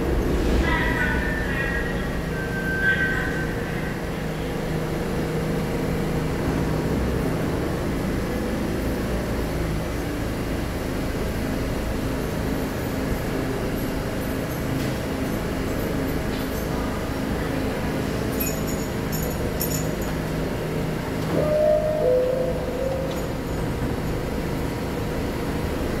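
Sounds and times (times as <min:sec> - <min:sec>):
subway car equipment humming: 0:00.0 - 0:26.0
low rumbling: 0:21.2 - 0:25.8.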